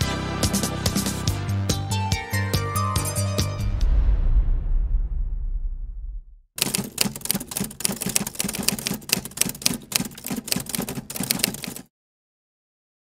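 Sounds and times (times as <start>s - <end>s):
keyboard typing: 6.6s - 11.9s.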